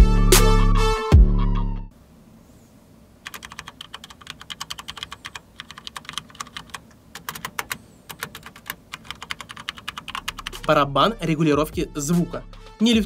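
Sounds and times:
mechanical keyboard typing: 0:03.2 - 0:10.8.

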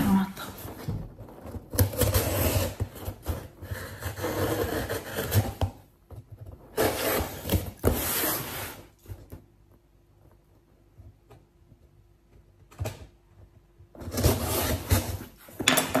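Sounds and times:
knife scraping cardboard: 0:01.4 - 0:05.8, 0:06.4 - 0:09.0, 0:14.0 - 0:15.6.

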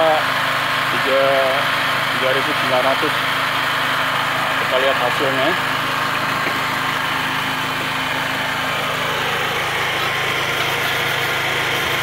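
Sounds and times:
generator running: 0:00.0 - 0:12.0
wire brush scrubbing steel: 0:05.0 - 0:12.0.

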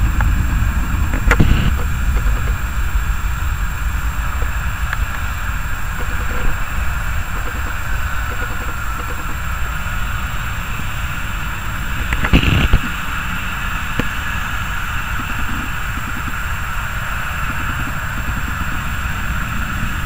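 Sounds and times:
loud knock and rumble: 0:00.0 - 0:09.4
jet engines whining at taxi power: 0:00.0 - 0:20.0.

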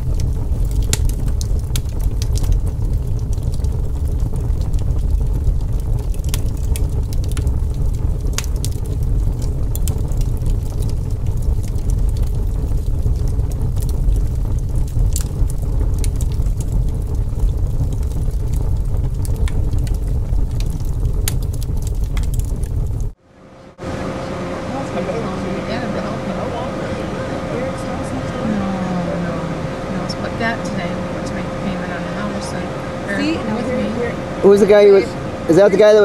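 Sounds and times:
faint clicks and crackles: 0:00.0 - 0:23.2
steady low rumble: 0:00.0 - 0:36.0.

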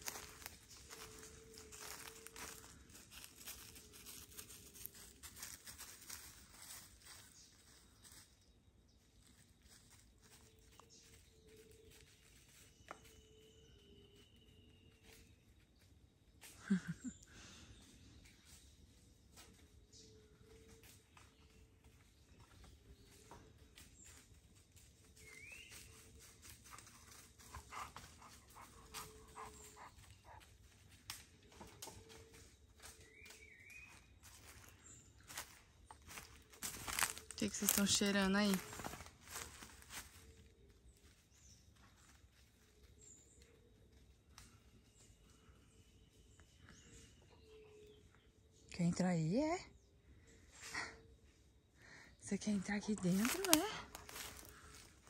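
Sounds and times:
footsteps rustling through undergrowth: 0:00.0 - 0:15.3, 0:18.4 - 0:44.0, 0:52.4 - 0:55.0
bird chirp: 0:00.0 - 0:16.0, 0:16.6 - 0:55.0.

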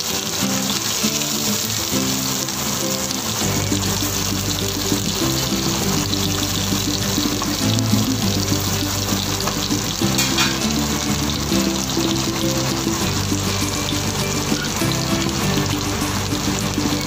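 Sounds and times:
background music low notes: 0:00.0 - 0:17.0
fish sizzling in oil: 0:00.0 - 0:17.0.

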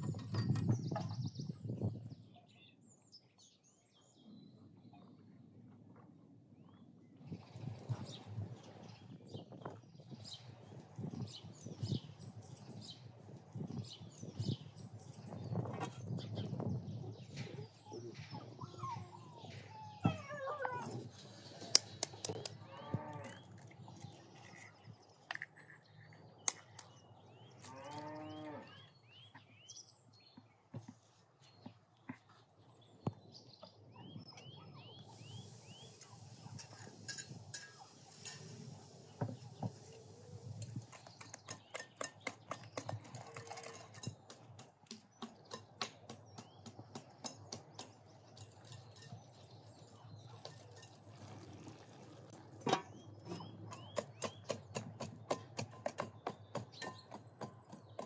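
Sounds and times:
small birds chirping: 0:06.6 - 0:58.0
cow mooing: 0:22.7 - 0:23.4, 0:27.7 - 0:28.9.

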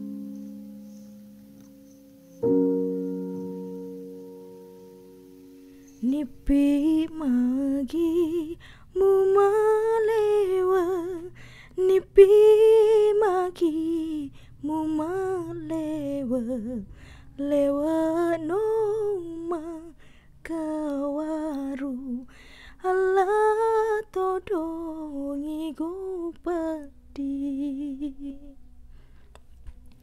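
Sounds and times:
woman singing a lullaby: 0:05.8 - 0:28.7.

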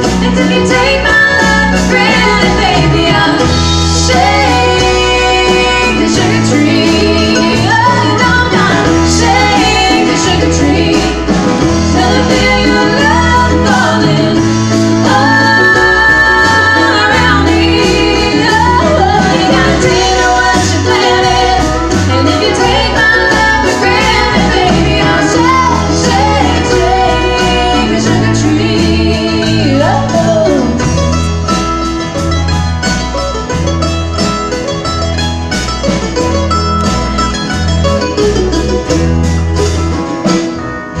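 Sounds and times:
woman singing lead vocal: 0:00.0 - 0:31.0
country band playing: 0:00.0 - 0:41.0.

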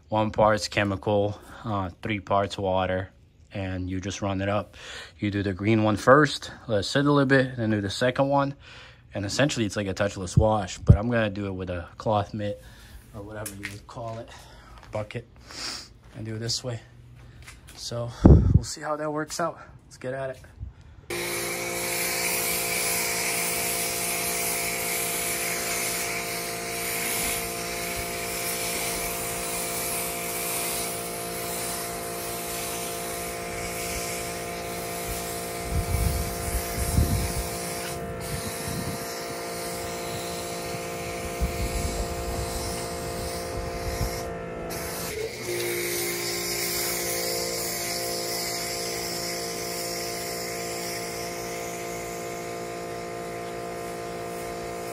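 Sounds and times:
pressure washer motor hum: 0:21.1 - 0:54.9
foam spraying hiss: 0:21.2 - 0:44.2.

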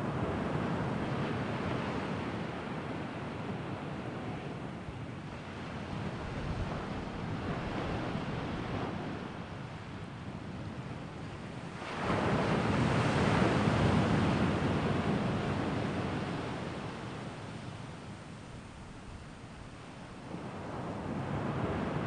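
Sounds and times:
wind rushing over microphone: 0:00.0 - 0:22.0.

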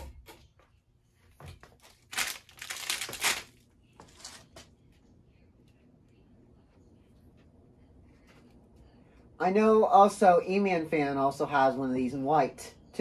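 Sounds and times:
loud crinkling rustle: 0:01.8 - 0:04.4.

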